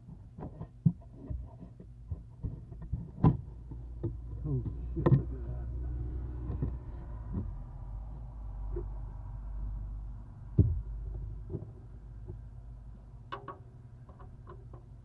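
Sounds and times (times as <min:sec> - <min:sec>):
low steady rumble: 0:00.0 - 0:15.0
knocks and bumps against box: 0:00.1 - 0:05.3, 0:10.5 - 0:11.8.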